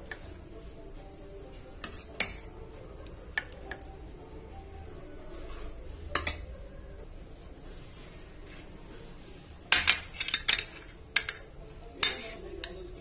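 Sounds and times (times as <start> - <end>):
crockery clinking: 6.1 - 6.5, 9.7 - 13.0.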